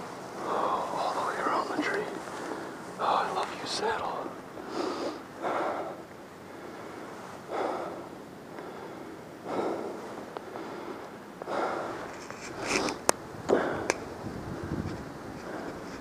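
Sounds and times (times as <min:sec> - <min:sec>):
person breathing hard: 0:04.6 - 0:14.7, 0:15.4 - 0:16.0.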